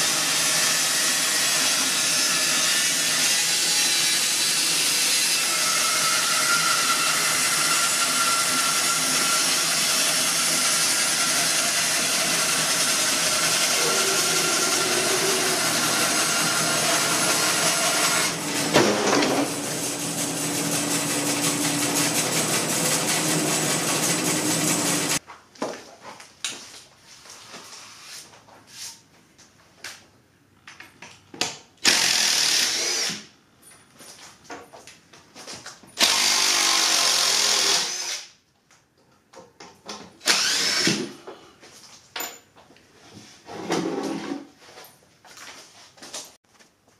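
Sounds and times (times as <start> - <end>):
bandsaw cutting log: 0.0 - 25.2, 31.9 - 33.2, 36.0 - 38.3, 40.3 - 41.2
cordless drill bursts: 31.8 - 33.3, 36.0 - 38.3, 40.2 - 41.1.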